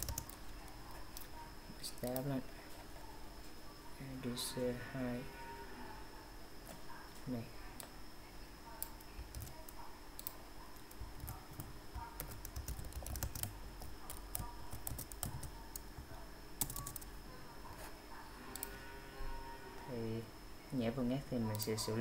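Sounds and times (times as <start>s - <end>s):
computer keyboard typing: 0.0s - 2.3s, 8.8s - 17.1s, 21.5s - 21.8s
faint high-pitched whine: 0.0s - 22.0s.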